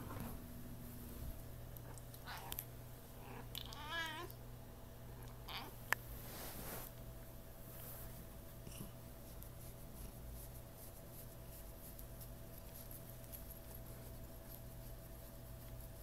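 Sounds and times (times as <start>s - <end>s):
steady low hum: 0.0s - 16.0s
fingers scratching cat fur: 7.8s - 16.0s.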